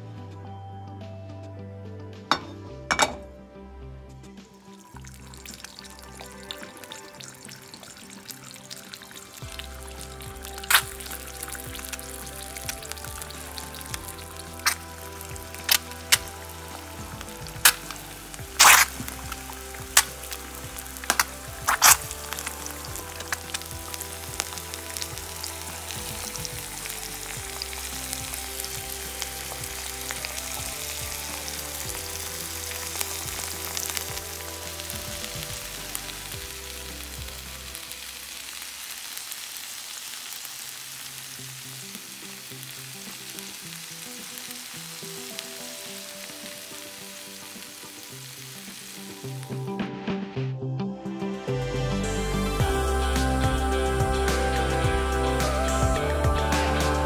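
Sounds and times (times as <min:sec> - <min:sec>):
soft background music: 0:00.0 - 0:57.0
eggs sizzling in oil: 0:04.5 - 0:49.7.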